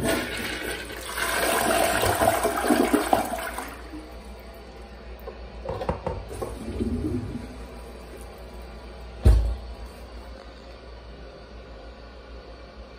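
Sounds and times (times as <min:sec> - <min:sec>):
toilet flushing: 0:00.0 - 0:04.7, 0:05.7 - 0:08.9
water gurgling and trickling: 0:06.3 - 0:08.1.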